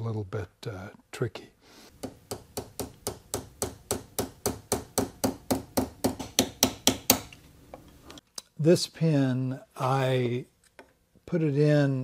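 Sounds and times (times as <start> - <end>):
small hammer tapping: 2.0 - 7.9.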